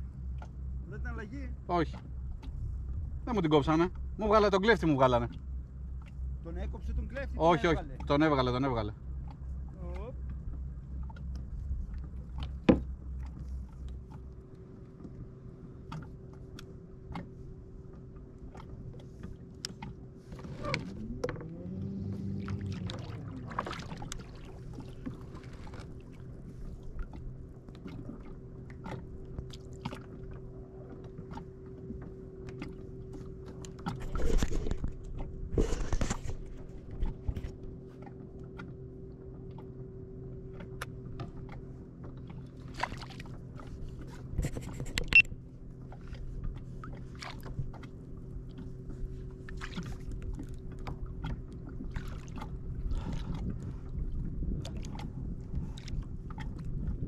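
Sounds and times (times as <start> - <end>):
knocks and clicks on hull: 0.2 - 0.8, 1.8 - 6.3, 6.9 - 57.0
water splashes: 15.8 - 38.7, 40.5 - 57.0.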